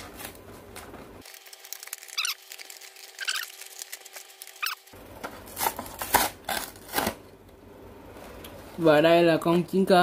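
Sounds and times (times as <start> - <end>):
plastic packaging crinkling and tearing: 1.2 - 7.2.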